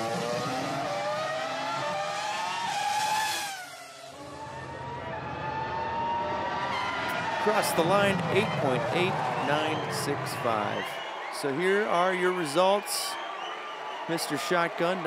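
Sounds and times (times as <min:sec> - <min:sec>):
race car engine revving: 0:00.0 - 0:10.9.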